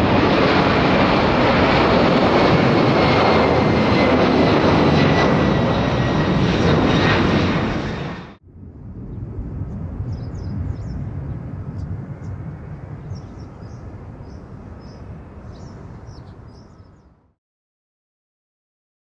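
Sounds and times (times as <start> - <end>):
jet engines rumbling: 0.0 - 17.3
small birds chirping: 10.0 - 17.2.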